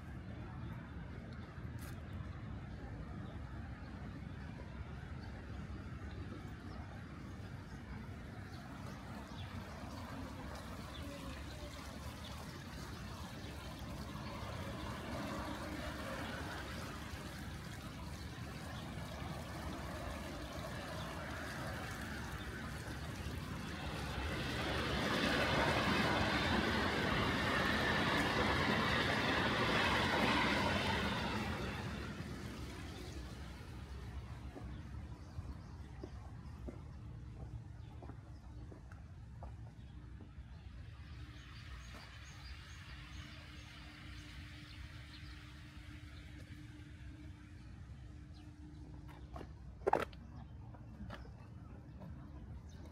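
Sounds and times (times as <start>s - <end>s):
outdoor background noise: 0.0s - 52.9s
vehicle passing: 8.2s - 35.5s.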